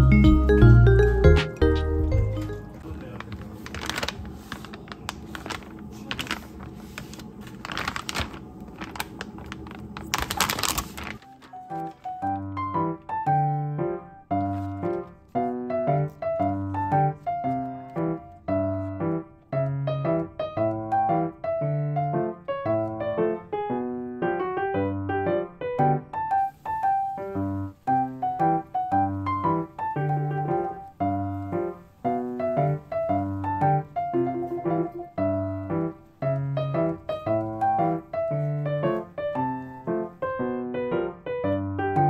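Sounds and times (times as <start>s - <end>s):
bouncy piano tune: 0.0s - 42.0s
rustling or scraping: 2.8s - 12.1s.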